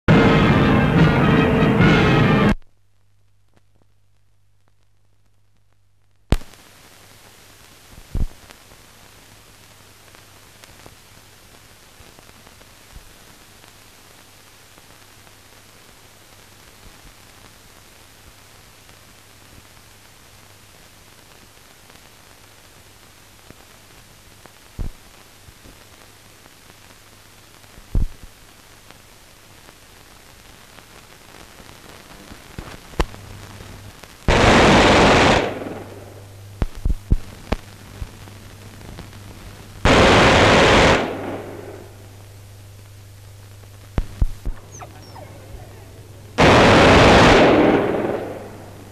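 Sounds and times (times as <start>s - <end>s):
loud burst of noise: 0.1s - 2.6s, 32.6s - 42.3s, 43.6s - 48.9s
film soundtrack hiss and hum: 0.1s - 48.9s.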